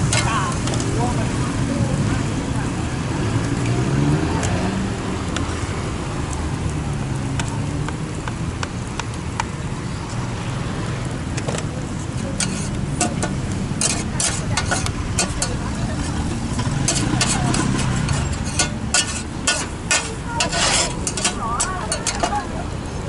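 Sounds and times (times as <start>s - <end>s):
traffic rumble: 0.0s - 23.0s
metal spatula scraping steel pan: 12.3s - 22.5s.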